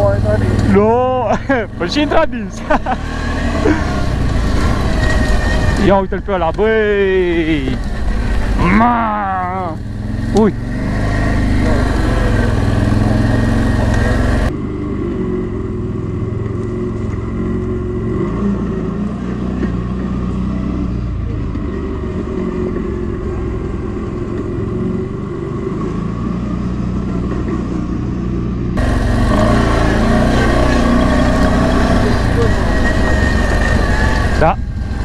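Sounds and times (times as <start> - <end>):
atv engine revving: 0.0 - 35.0.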